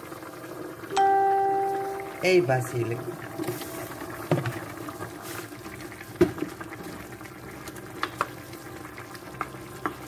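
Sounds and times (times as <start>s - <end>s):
sauce simmering: 0.0s - 10.0s
vegetables sloshing when stirred: 3.4s - 7.2s.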